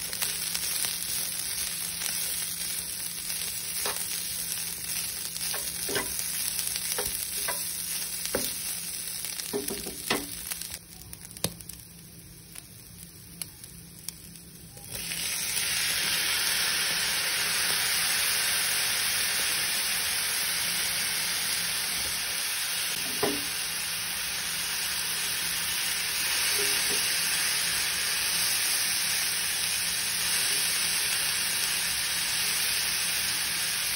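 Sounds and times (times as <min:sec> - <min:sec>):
food sizzling in a pan: 0:00.0 - 0:33.9
knock on pan: 0:09.5 - 0:10.3, 0:23.0 - 0:23.6.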